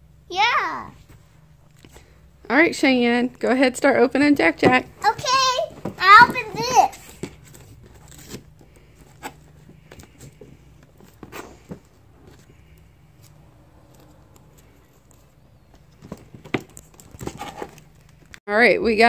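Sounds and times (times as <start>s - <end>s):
cardboard rustling: 4.6s - 18.4s
cardboard tearing and scraping: 16.6s - 17.9s.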